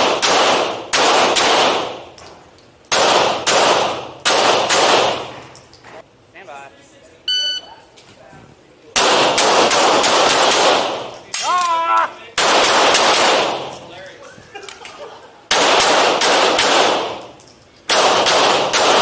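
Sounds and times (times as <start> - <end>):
handgun shots echoing: 0.0 - 2.3, 2.9 - 5.5, 9.0 - 11.7, 12.4 - 13.9, 15.5 - 19.0.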